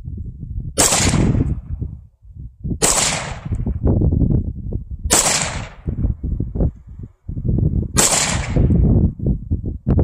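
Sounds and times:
rifle shots: 0:00.8 - 0:01.6, 0:02.8 - 0:03.6, 0:05.1 - 0:05.9, 0:08.0 - 0:08.8.

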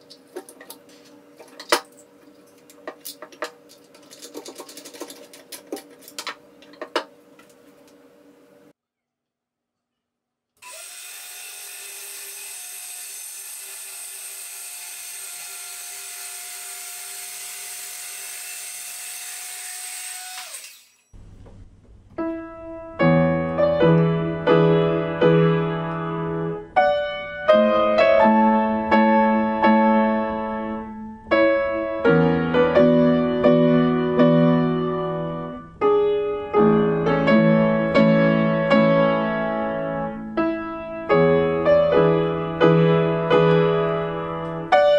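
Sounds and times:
circular saw cutting wood: 0:10.6 - 0:21.2
piano music: 0:22.1 - 0:44.9.

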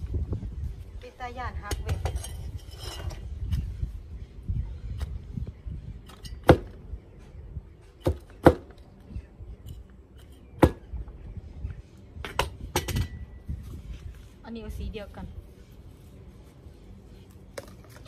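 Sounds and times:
rustling of soil and leaves: 0:13.3 - 0:18.0.

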